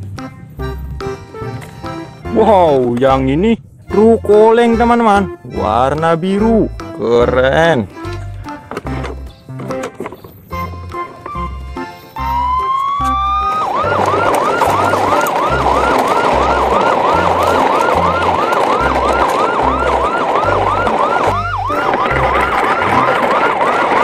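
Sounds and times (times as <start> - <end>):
electronic yelp siren: 12.2 - 24.0.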